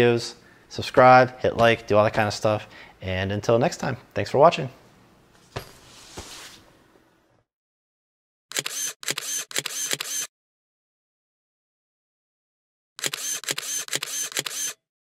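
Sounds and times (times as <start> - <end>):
camera shutter clicking: 8.5 - 10.3, 13.0 - 14.8.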